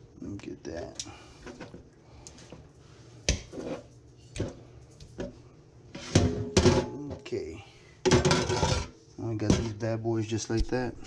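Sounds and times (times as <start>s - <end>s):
clatter into metal bowl: 8.1s - 9.8s.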